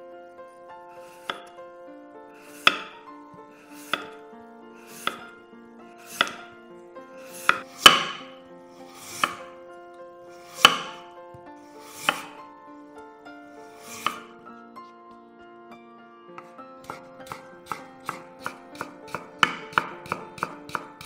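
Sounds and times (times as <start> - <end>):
knife slicing potato on board: 1.0 - 1.5, 2.4 - 3.0, 3.6 - 4.2, 4.8 - 5.4, 6.0 - 6.5, 7.2 - 9.5, 10.4 - 11.0, 11.8 - 12.4, 13.8 - 14.3, 16.4 - 21.0.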